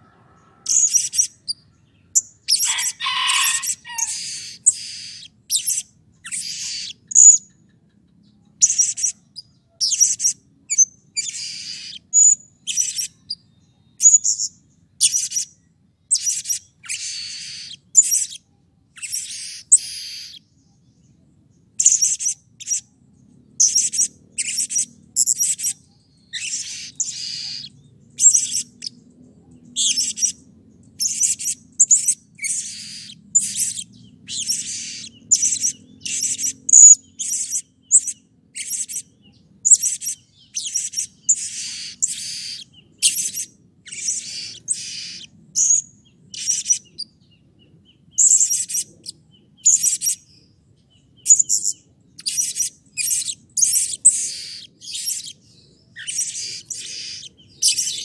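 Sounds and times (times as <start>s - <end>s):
parrot calling shrilly: 2.4s - 7.4s, 11.2s - 13.2s, 16.1s - 18.4s, 19.0s - 20.4s, 23.7s - 28.9s, 31.0s - 39.0s, 39.7s - 45.8s, 56.0s - 58.0s.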